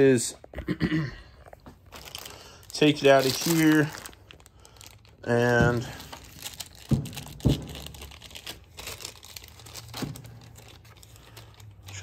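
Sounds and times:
plastic wrapping crinkling: 0:01.4 - 0:12.0
sharp knocks: 0:06.8 - 0:08.1.

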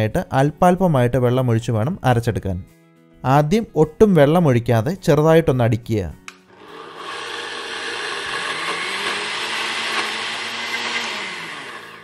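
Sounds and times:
blender motor grinding: 0:06.5 - 0:12.0.

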